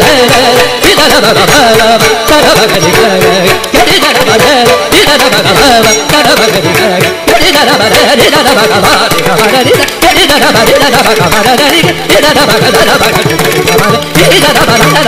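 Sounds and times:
drum strokes: 0.0 - 15.0.

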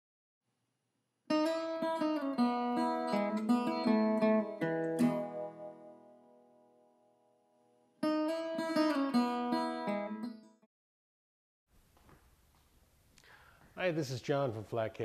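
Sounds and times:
acoustic guitar music: 1.3 - 7.2, 8.0 - 10.7.

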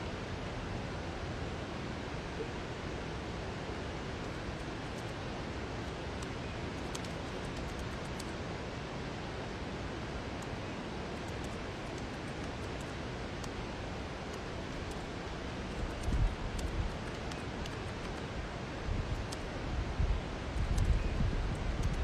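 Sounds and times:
outdoor background hiss: 0.0 - 22.0
wind buffeting the microphone: 15.7 - 22.0.

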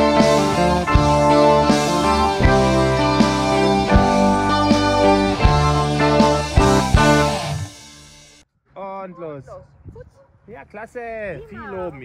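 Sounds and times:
steady drum beat: 0.0 - 8.4
sustained chords: 0.0 - 8.4.

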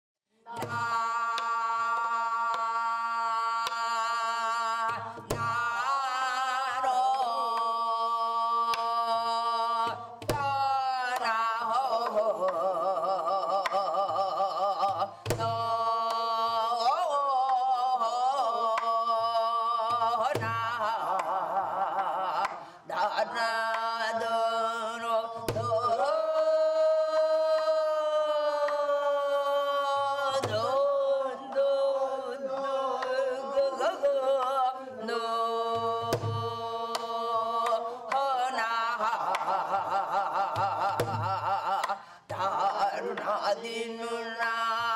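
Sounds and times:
person singing with vibrato: 0.3 - 44.9.

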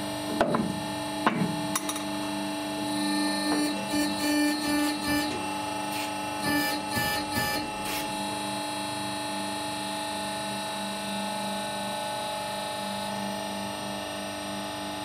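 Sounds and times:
hydraulic press humming: 2.8 - 8.3.

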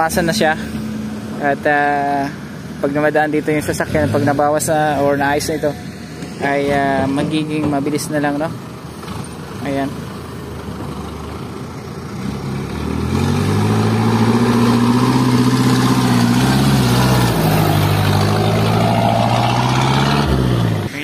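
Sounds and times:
truck engine climbing past: 5.8 - 21.0.

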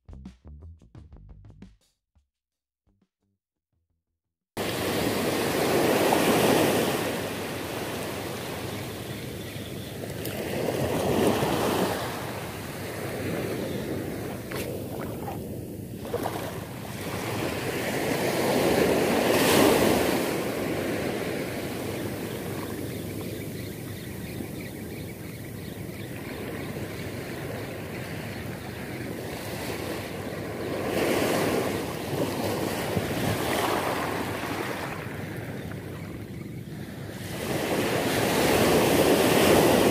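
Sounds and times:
surf washing over sand: 4.6 - 9.3, 10.0 - 22.8.

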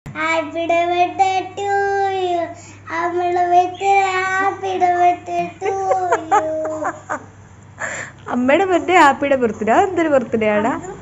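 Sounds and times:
young boy singing: 0.2 - 6.8.

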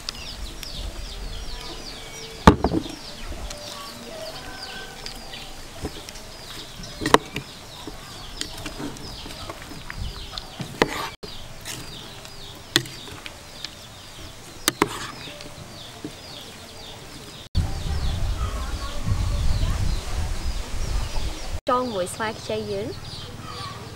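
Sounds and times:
small birds chirping: 0.0 - 23.9
utensils tossing salad: 5.8 - 13.3, 14.4 - 16.2.

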